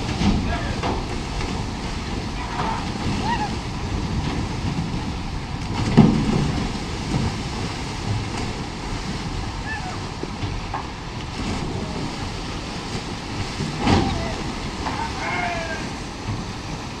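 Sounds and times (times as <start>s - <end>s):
loud splash: 0.0s - 10.4s, 11.0s - 17.0s
churning river water: 0.0s - 17.0s
wind buffeting microphone: 0.0s - 17.0s.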